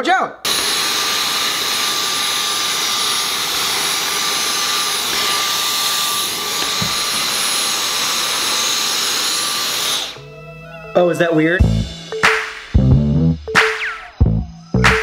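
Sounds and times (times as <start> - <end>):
stick vacuum running: 0.5 - 10.3.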